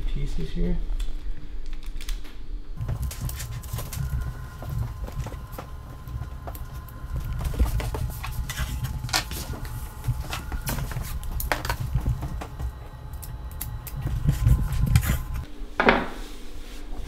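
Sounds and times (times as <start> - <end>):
tape crackling and clicking: 1.0 - 15.5
steady low rumble: 2.6 - 15.7.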